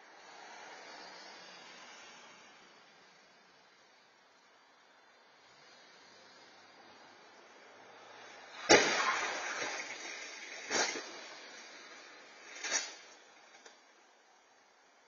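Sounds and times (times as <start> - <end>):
vehicle crash bang: 8.6 - 11.7.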